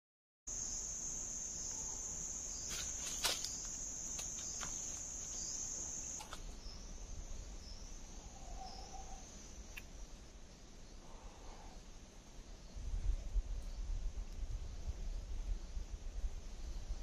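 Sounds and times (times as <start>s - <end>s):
high-pitched insect drone: 0.5s - 9.6s.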